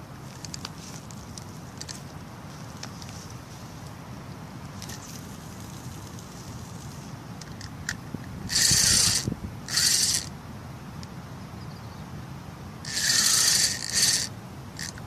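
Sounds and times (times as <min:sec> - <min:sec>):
fishing reel ratcheting: 0:07.6 - 0:10.3, 0:12.8 - 0:15.0.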